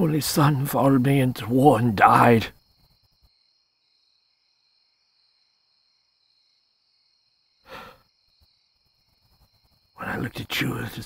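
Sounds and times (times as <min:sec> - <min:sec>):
insect chirring: 0:00.0 - 0:11.0
man sighing: 0:07.6 - 0:08.0.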